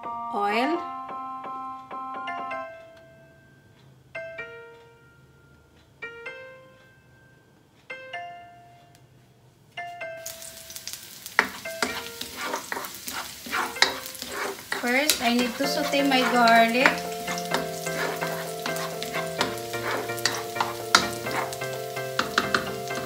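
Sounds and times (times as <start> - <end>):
soft piano background music: 0.0 - 23.0
garlic sizzling in hot oil: 10.2 - 23.0
spatula clicking and scraping: 11.2 - 23.0.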